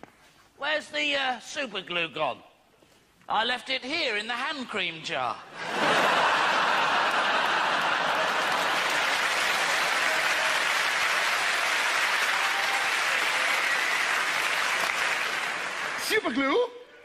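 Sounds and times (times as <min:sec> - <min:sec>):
audience applauding: 0:05.8 - 0:16.3.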